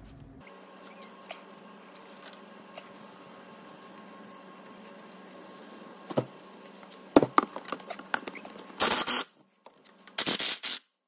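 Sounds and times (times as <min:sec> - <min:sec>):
impact driver buzz: 0:08.8 - 0:09.3, 0:10.2 - 0:10.9.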